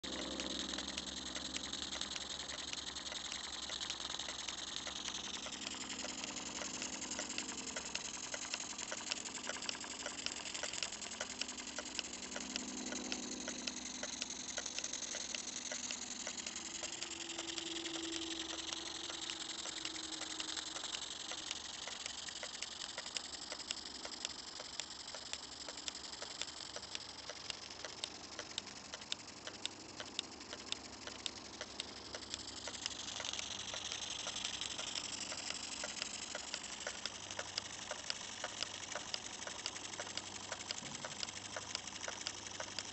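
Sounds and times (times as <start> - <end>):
toy steam engine ticking: 0.0 - 42.9.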